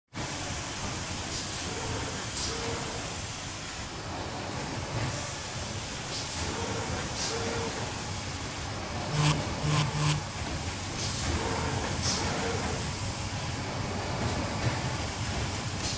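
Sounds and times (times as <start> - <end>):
steady machine noise: 9.0 - 10.4.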